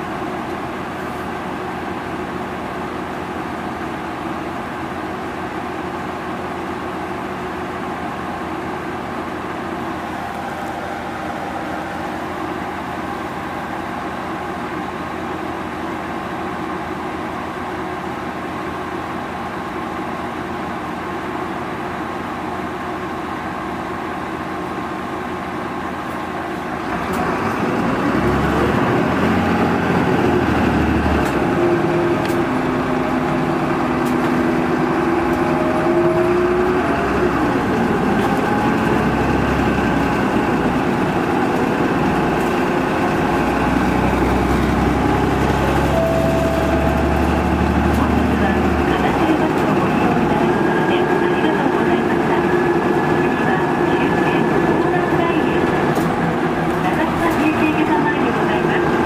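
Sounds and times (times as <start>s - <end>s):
bus diesel engine running: 0.0s - 59.0s.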